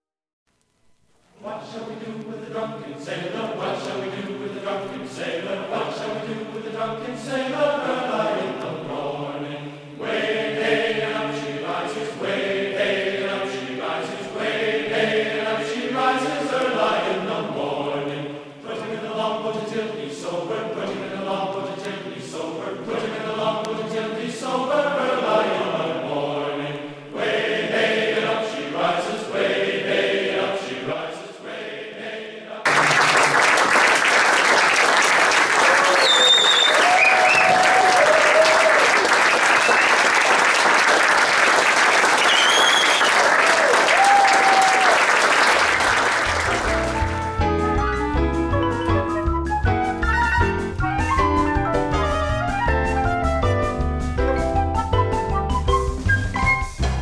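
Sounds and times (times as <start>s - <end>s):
group of voices singing: 1.4s - 33.2s
audience applause: 32.6s - 47.3s.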